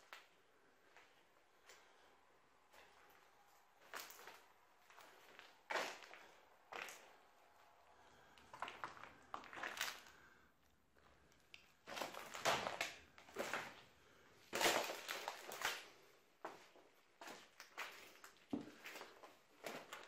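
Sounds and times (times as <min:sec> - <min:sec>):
footsteps crunching on debris: 0:02.7 - 0:07.4, 0:08.4 - 0:10.3, 0:11.8 - 0:20.0.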